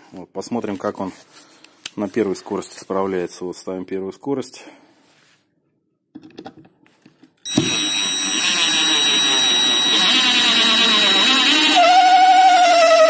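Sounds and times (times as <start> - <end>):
impact driver motor whining: 7.5 - 13.0.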